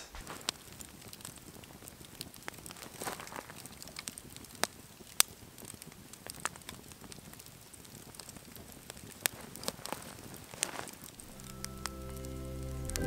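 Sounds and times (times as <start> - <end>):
campfire crackling: 0.0 - 13.0
fire popping: 0.0 - 13.0.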